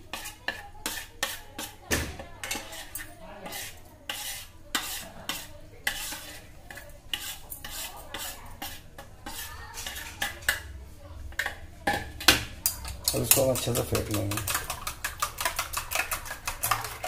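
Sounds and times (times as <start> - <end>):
metal spoon scraping ceramic plate: 0.1 - 1.8, 2.4 - 10.6.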